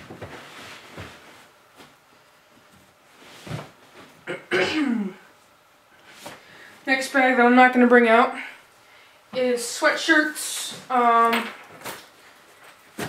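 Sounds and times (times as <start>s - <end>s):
man clearing throat: 4.3s - 5.2s.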